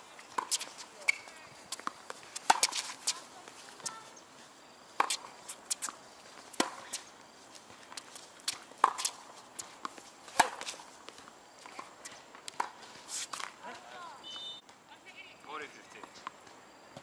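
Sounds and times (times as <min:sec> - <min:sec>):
tennis ball struck by rackets: 0:00.4 - 0:04.0, 0:05.0 - 0:07.1, 0:07.9 - 0:14.0.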